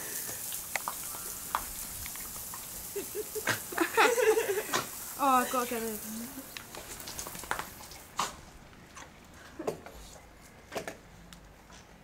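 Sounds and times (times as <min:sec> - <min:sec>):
dog licking lips: 0:00.2 - 0:03.7.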